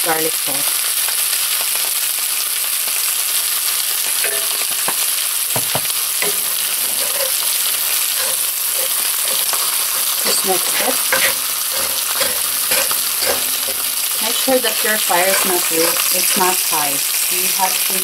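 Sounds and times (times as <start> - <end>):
rice sizzling in a skillet: 0.0 - 18.0
spatula knocking: 4.2 - 16.7
wooden spatula scraping: 5.9 - 17.0.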